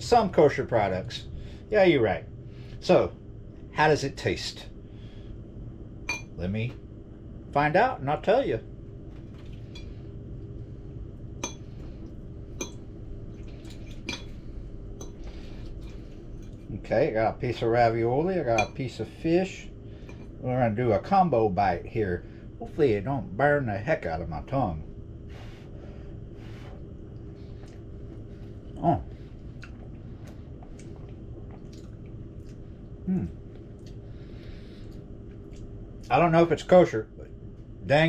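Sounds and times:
low steady hum: 0:00.0 - 0:38.0
wet chewing mouth clicks: 0:29.6 - 0:32.6.

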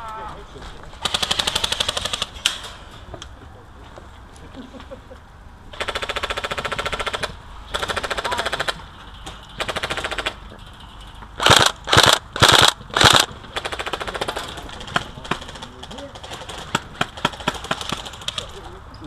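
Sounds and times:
airsoft rifle bursts: 0:11.4 - 0:14.5.

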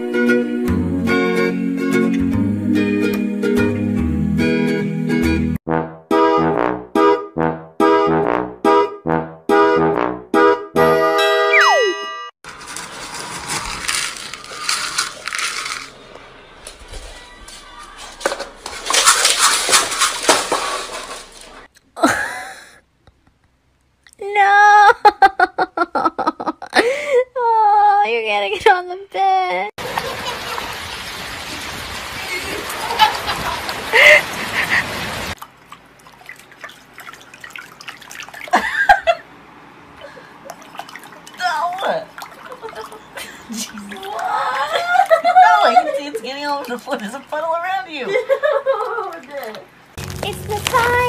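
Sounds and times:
dry kibble rattling: 0:12.5 - 0:21.7
pellets scattering on wooden floor: 0:12.6 - 0:16.0, 0:16.7 - 0:21.7
rain pattering: 0:12.6 - 0:21.7, 0:29.8 - 0:36.8, 0:41.2 - 0:51.0
water splashing in a bowl: 0:17.9 - 0:21.7, 0:35.3 - 0:39.2, 0:40.0 - 0:47.3, 0:48.2 - 0:51.0.

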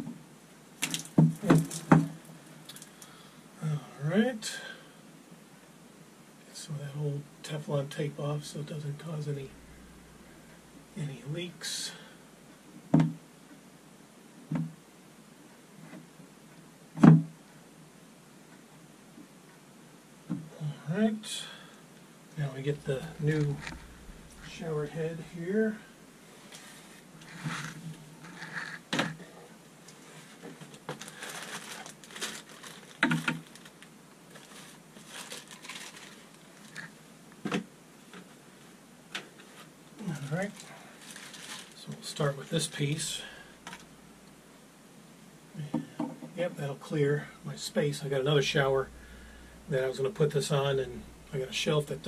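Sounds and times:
plastic bag crinkling: 0:00.8 - 0:01.9, 0:30.9 - 0:36.9, 0:40.4 - 0:42.0.

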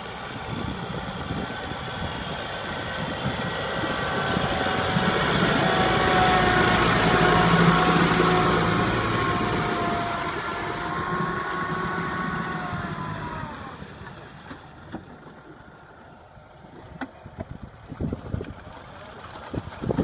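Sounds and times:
engine running: 0:00.0 - 0:20.0.

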